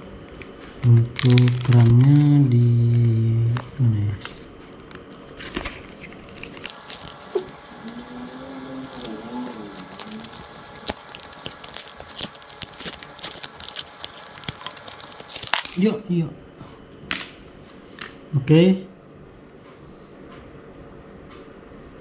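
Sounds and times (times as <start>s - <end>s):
packaging crackling and tearing: 0.8s - 2.3s, 5.4s - 15.8s.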